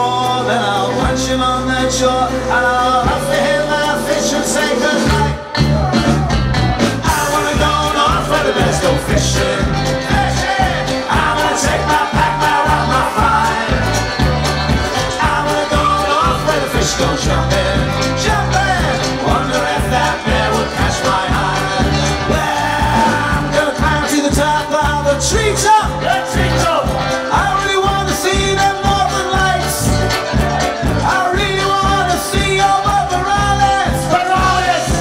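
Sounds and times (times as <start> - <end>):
live folk rock band playing: 0.0 - 35.0.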